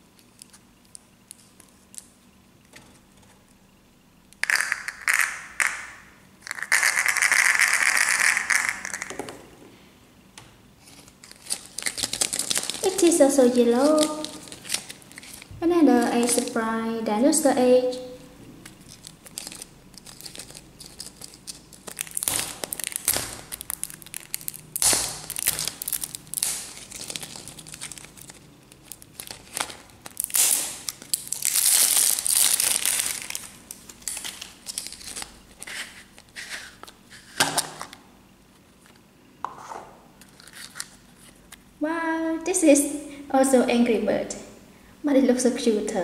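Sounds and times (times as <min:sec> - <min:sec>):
plastic wrap crinkling and tearing: 0:10.9 - 0:15.5, 0:18.6 - 0:38.0, 0:40.2 - 0:41.6.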